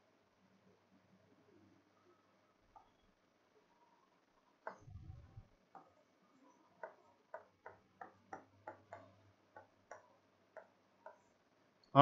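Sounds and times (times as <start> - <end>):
pen clicking on glass board: 6.8 - 11.3.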